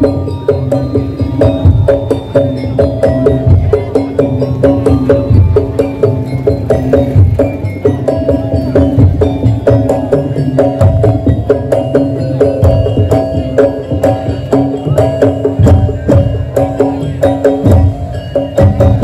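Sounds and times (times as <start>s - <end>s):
deep drums fast beat: 0.0s - 19.0s
pitched metal percussion melody: 0.0s - 19.0s.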